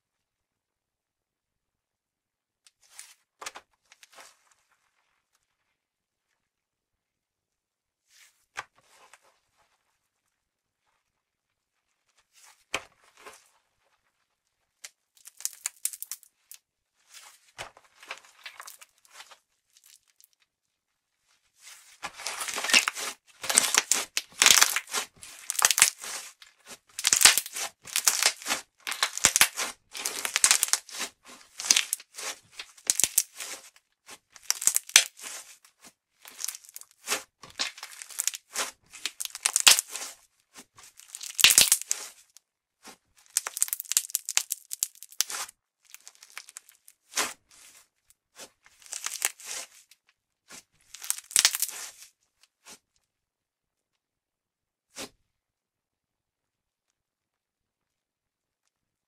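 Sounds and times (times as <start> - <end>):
slime crackling and popping: 15.2 - 16.5, 22.2 - 26.4, 27.0 - 33.6, 34.4 - 35.4, 36.3 - 40.1, 41.0 - 42.1, 43.3 - 46.8, 48.8 - 49.7, 50.9 - 52.0.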